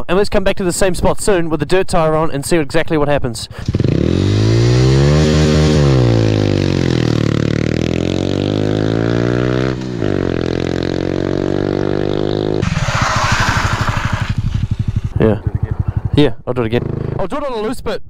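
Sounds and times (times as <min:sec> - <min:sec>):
motorcycle engine revving: 0:03.6 - 0:17.3
rushing noise: 0:12.6 - 0:15.9.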